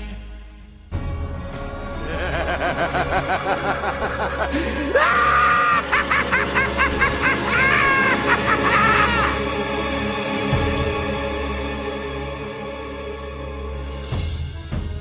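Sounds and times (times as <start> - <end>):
music: 0.0 - 15.0
person cackling with laughter: 2.0 - 9.4.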